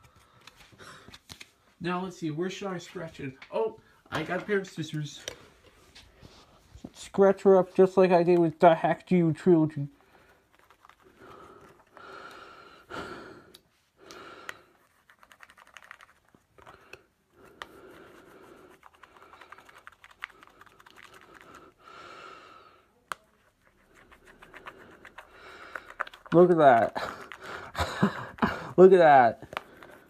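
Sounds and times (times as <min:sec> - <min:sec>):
sharp clicks and taps: 0:23.1 - 0:23.3.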